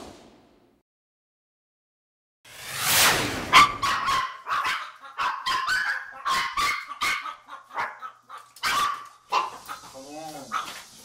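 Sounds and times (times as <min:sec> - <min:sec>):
small dogs barking high-pitched: 0:03.5 - 0:10.8.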